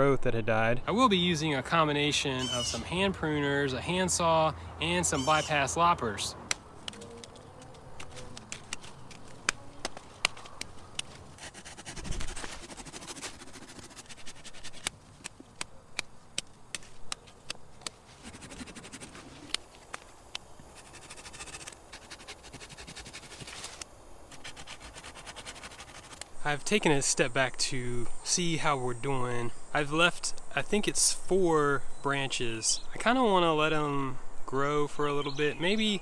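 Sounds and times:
pruners snipping branches: 6.4s - 13.2s, 14.0s - 18.0s.

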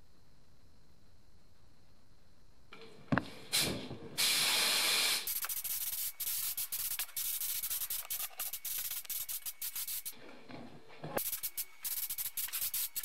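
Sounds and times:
spray gun hissing: 3.5s - 10.2s, 11.2s - 13.0s.

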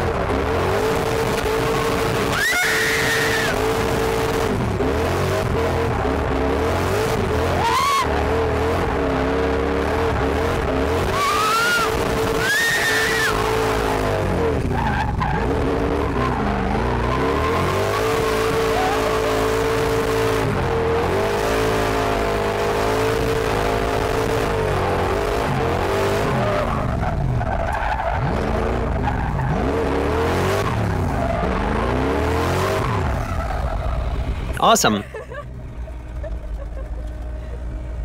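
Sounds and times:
car engine revving: 0.0s - 38.0s
tyres skidding: 0.0s - 38.0s
high tyre squeals: 1.5s - 4.0s, 7.4s - 8.5s, 10.6s - 21.2s, 25.4s - 34.6s.

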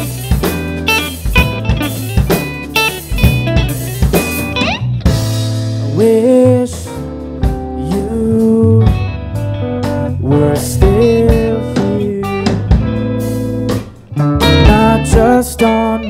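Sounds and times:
drum kit hits: 0.0s - 6.0s, 10.8s - 15.4s
electric guitar lead notes bending: 0.0s - 16.0s
live rock band playing: 0.0s - 16.0s.

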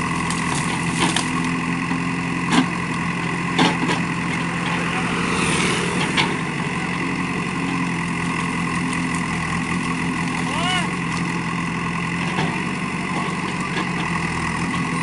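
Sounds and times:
diesel engine running: 0.0s - 15.0s
branches cracking: 0.2s - 1.5s.

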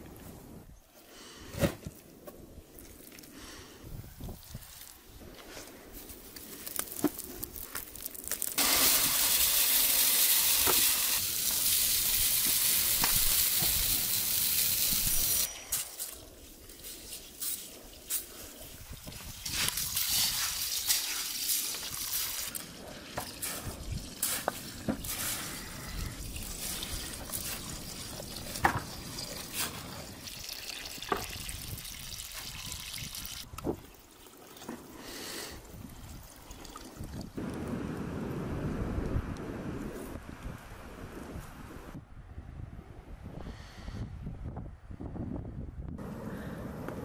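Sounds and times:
hose water splashing into pot: 8.0s - 15.5s, 17.1s - 37.4s.

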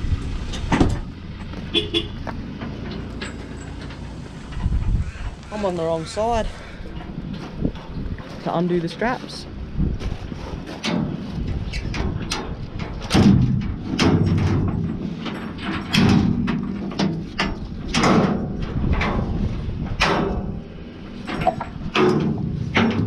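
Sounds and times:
loud metal knocks: 11.9s - 23.0s.

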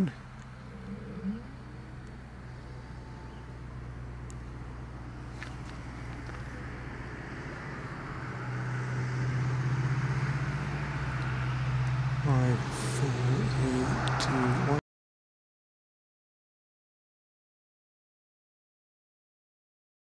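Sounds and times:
low engine hum: 0.0s - 14.8s.

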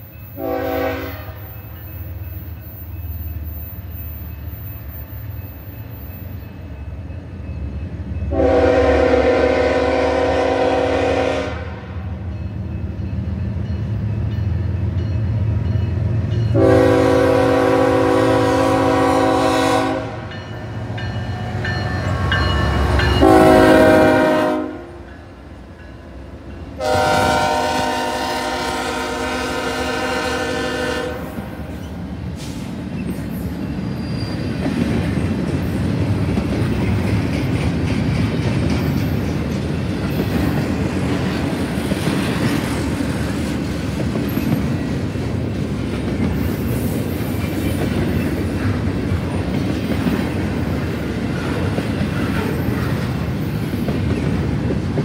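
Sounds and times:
locomotive air horn: 0.4s - 1.5s, 8.3s - 12.1s, 16.5s - 20.3s, 23.2s - 25.1s, 26.8s - 31.6s.

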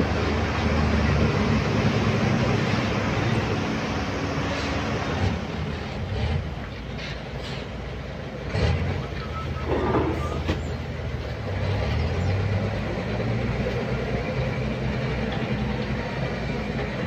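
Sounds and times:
excavator diesel engine: 0.0s - 17.0s
brief squeal: 9.0s - 10.8s.

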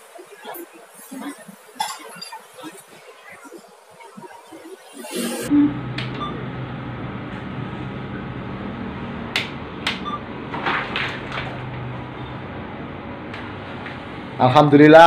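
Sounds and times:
short beeps: 5.2s - 6.4s
steady low hum: 5.5s - 10.6s.

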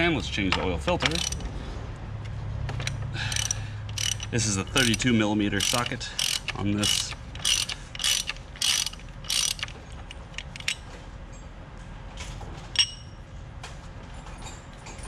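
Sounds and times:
ratchet wrench ratcheting: 1.0s - 1.5s, 2.8s - 10.8s.

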